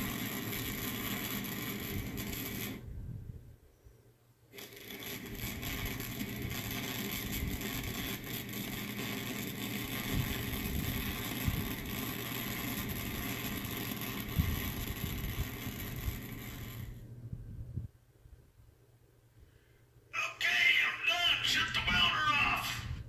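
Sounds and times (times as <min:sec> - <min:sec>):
arc welding crackling sizzle: 0:00.0 - 0:02.9, 0:04.5 - 0:17.0.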